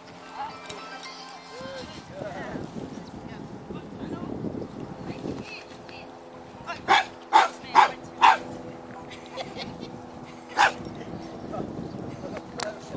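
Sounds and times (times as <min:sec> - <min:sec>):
dog barking: 0:06.9 - 0:08.5, 0:10.5 - 0:10.8.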